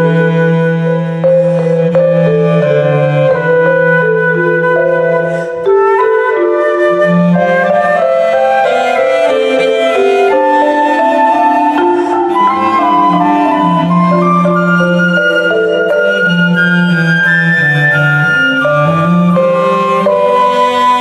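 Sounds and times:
flute melody: 0.0 - 21.0
marimba notes: 0.0 - 21.0
low cello notes: 9.8 - 21.0.

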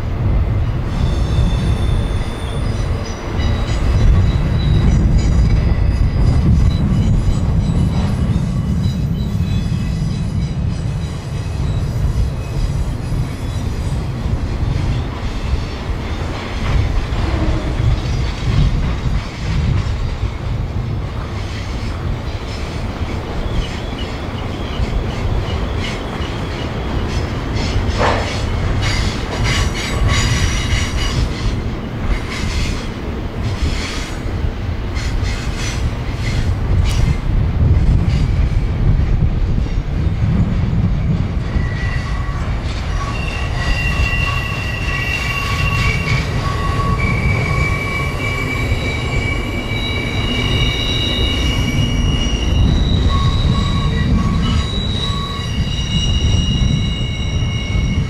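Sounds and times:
freight train rumbling past: 0.0 - 58.0
high-pitched wheel squeal: 1.0 - 7.4, 41.5 - 58.0.

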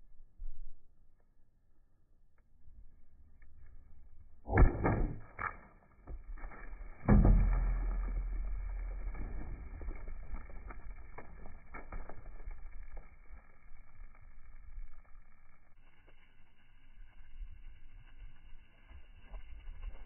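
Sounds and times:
deep rumble: 6.4 - 20.0.

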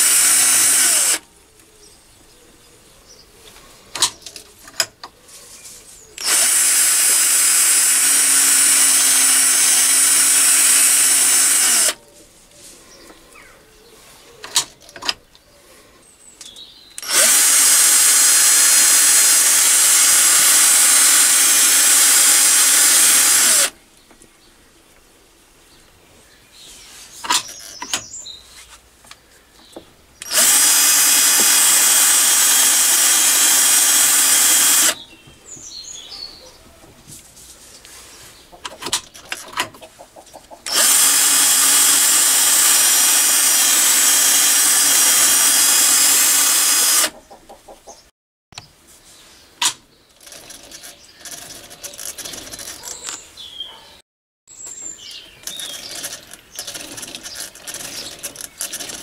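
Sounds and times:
power drill whine: 0.0 - 1.2, 6.2 - 12.0, 17.0 - 23.8, 30.2 - 35.0, 40.7 - 47.1
sharp clicks and knocks: 14.4 - 15.2, 38.6 - 41.5, 49.6 - 53.2, 55.4 - 59.0.

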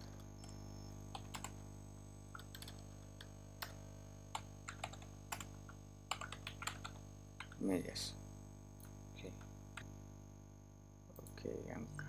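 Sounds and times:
steady low hum: 0.0 - 12.0
keyboard keys clicking: 2.4 - 2.8, 3.6 - 5.5, 6.1 - 7.6.

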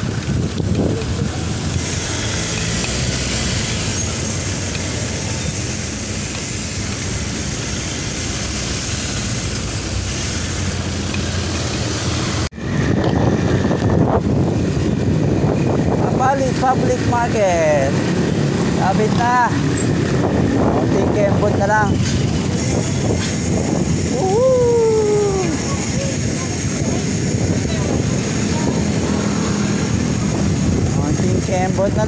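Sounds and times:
wind rushing over microphone: 0.0 - 10.9, 11.9 - 32.0
road noise rumbling hiss: 0.0 - 32.0.

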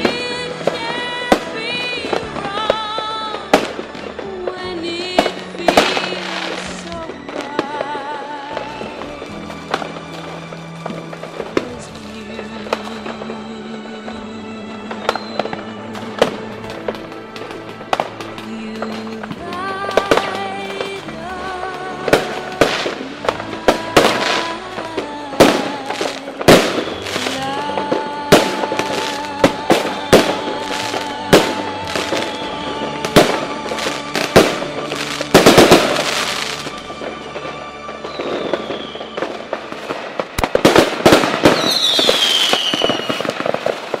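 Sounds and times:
fireworks bangs and crackling: 0.0 - 44.0
music with wavering melody: 0.0 - 44.0
high falling whistle: 38.1 - 39.5.

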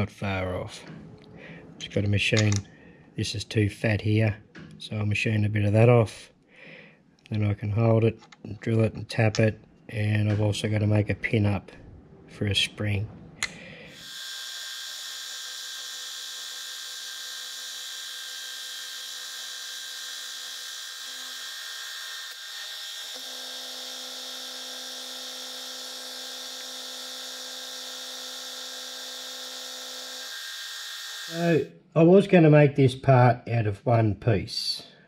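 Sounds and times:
milling machine cutting metal: 14.0 - 31.4.

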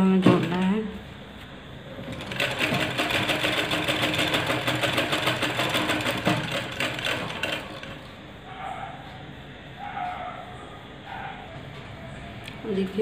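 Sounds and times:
sewing machine clatter: 2.0 - 8.1.

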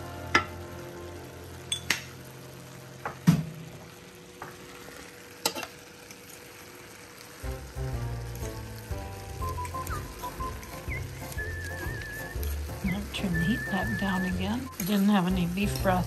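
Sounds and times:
faint sizzle: 0.0 - 16.0
metal fork scraping a skillet: 11.7 - 12.7, 14.7 - 16.0.

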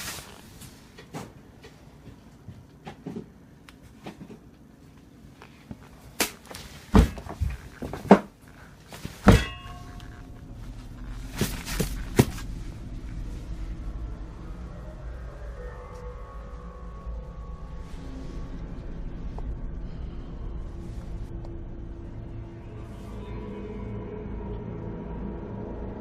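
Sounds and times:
footsteps indoors: 0.0 - 13.8
ringing knock: 9.3 - 10.7.

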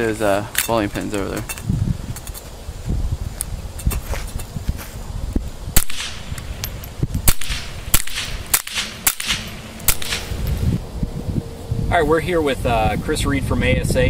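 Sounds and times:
suppressed pistol shots: 5.8 - 10.6.

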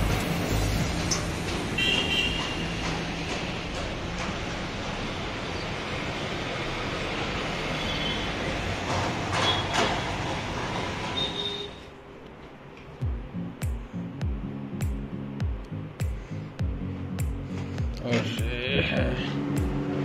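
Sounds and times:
road traffic passing: 0.0 - 20.0
vehicle passing by: 17.6 - 20.0.

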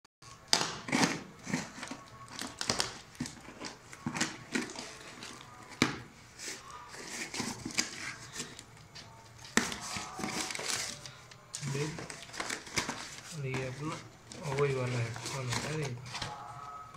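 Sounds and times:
scissors cutting packing tape: 0.3 - 8.6, 9.4 - 14.0.

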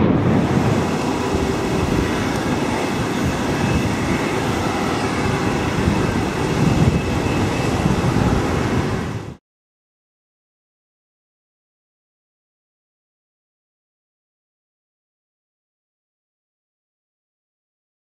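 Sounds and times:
jet airliner passing low: 0.0 - 9.4.

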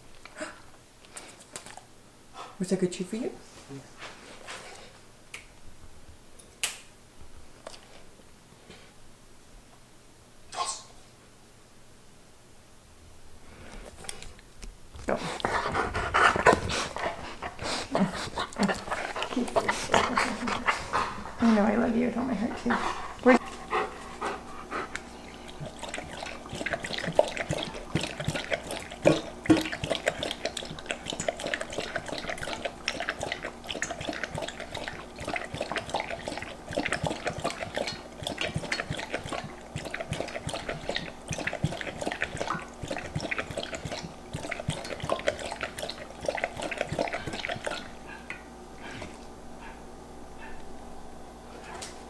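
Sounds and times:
dog lapping water from metal bowl: 23.1 - 48.3.

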